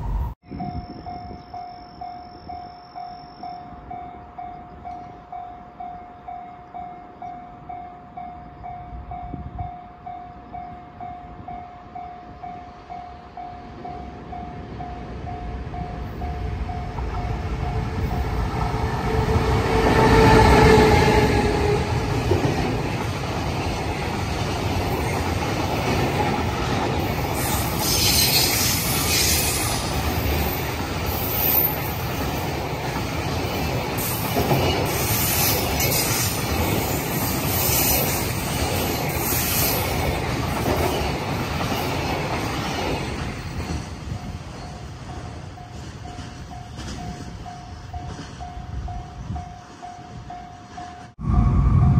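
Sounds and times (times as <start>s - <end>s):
electric locomotive passing: 0.0s - 51.9s
level-crossing warning bell: 0.1s - 23.0s, 43.5s - 51.2s.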